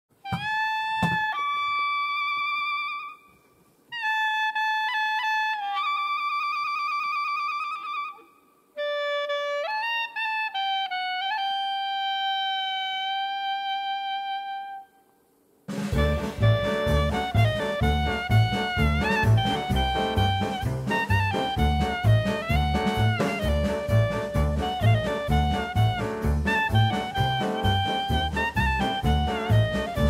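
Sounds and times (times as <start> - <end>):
wind instrument playing long notes: 0.2 - 15.1, 15.9 - 30.0
band with drums: 0.3 - 1.3, 15.7 - 30.0.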